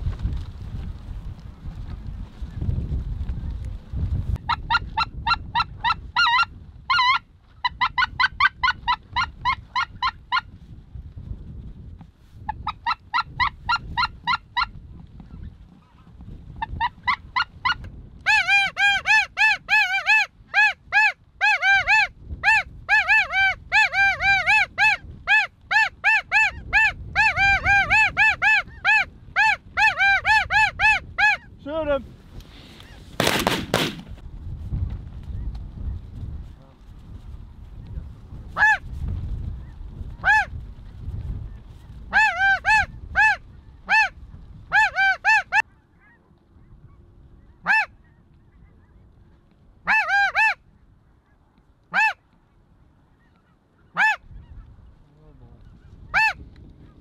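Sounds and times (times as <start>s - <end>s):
geese honking: 42.1s - 46.3s, 46.9s - 49.0s, 49.8s - 52.5s, 53.1s - 54.7s.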